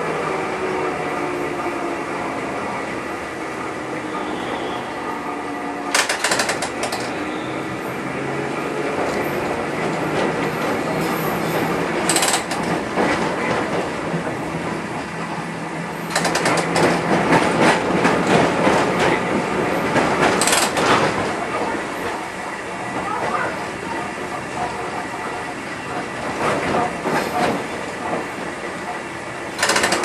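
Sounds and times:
wheels clattering over rail joints: 5.9 - 7.2, 9.0 - 15.3, 16.0 - 21.6, 29.5 - 30.0
clicks and knocks: 29.6 - 30.0.

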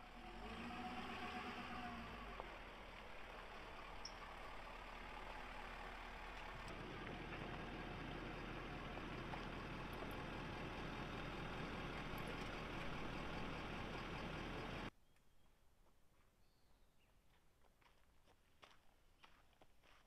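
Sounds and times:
vehicle engine running: 0.0 - 14.9.

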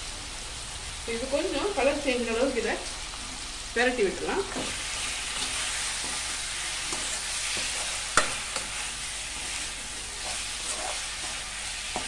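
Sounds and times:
chicken sizzling in oil: 0.0 - 12.0
spatula scraping and tapping pan: 4.5 - 12.0.

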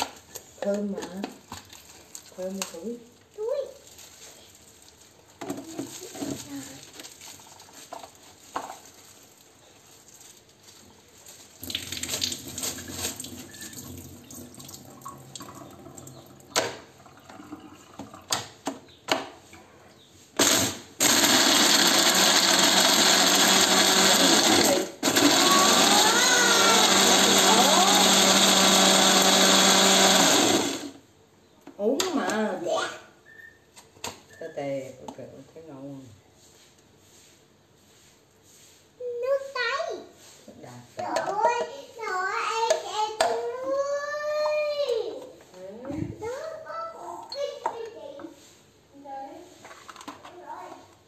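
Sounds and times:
blender motor grinding: 20.4 - 31.0.

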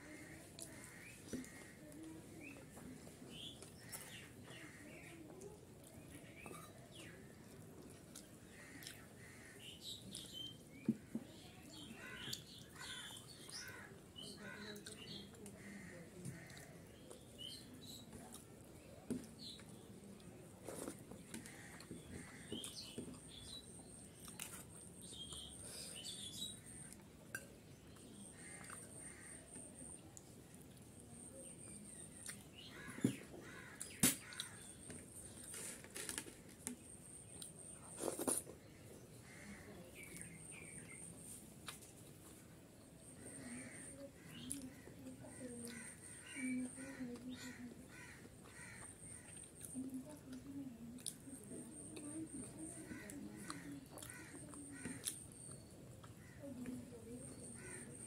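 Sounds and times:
person chewing food: 7.5 - 9.1, 24.2 - 25.6, 53.4 - 56.3.

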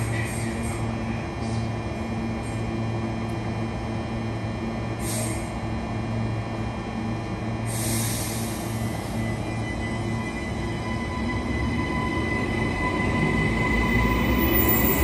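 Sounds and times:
electric train humming: 0.0 - 15.0
air hiss: 5.0 - 5.5, 7.7 - 9.1.

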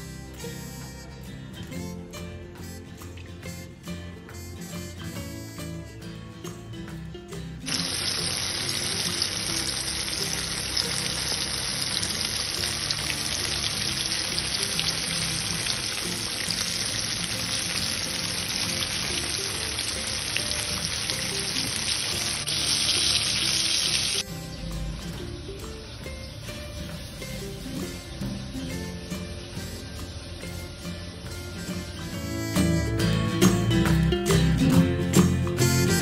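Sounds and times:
chicken deep-frying sizzle: 7.7 - 31.9.

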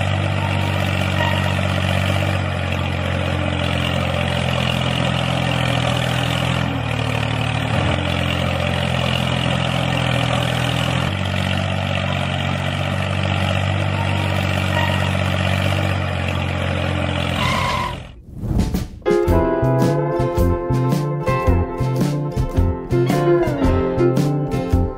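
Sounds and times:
engine idling drone: 0.0 - 18.2.

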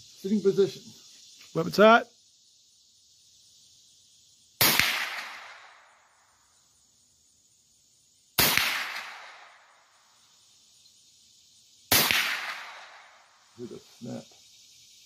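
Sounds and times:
rifle shots echoing: 4.6 - 5.9, 8.4 - 9.7, 11.9 - 13.2.

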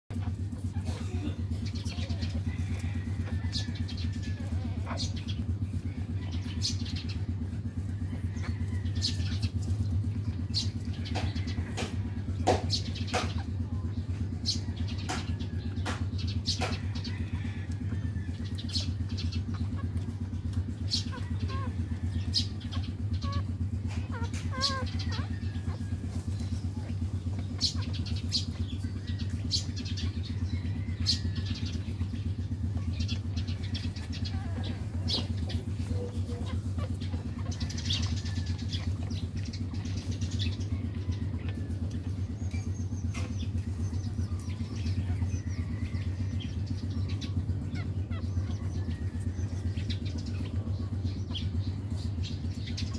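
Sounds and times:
pulsing mechanical hum: 0.1 - 52.9
puppies clicking and squeaking: 0.1 - 52.9
puppies squeaking: 20.8 - 28.8, 32.8 - 40.9.

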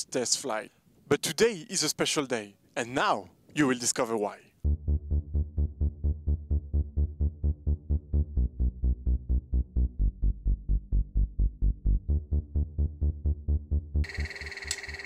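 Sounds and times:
electronic music with pulsing beat: 4.7 - 15.0.

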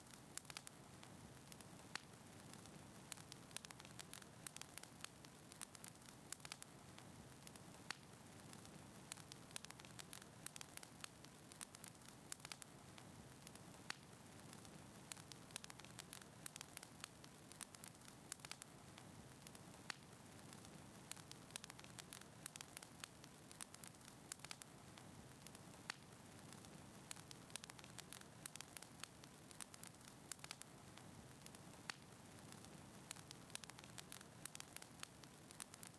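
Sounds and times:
fire crackling and popping: 0.0 - 35.9.

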